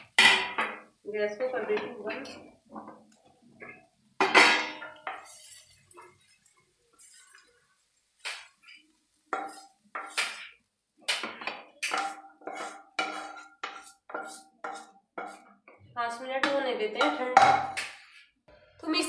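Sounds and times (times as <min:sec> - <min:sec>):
spoon clanging on metal pan: 0:00.0 - 0:00.9, 0:01.6 - 0:03.0, 0:03.6 - 0:07.5, 0:08.2 - 0:15.7, 0:16.4 - 0:18.0
spoon scraping metal pan: 0:03.6 - 0:15.7.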